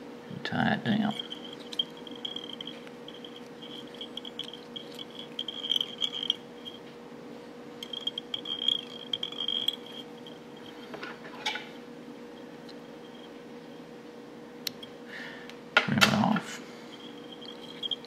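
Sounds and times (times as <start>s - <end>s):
bobbin thread fluttering chatter: 1.1s - 6.8s, 7.8s - 10.9s, 16.9s - 18.0s.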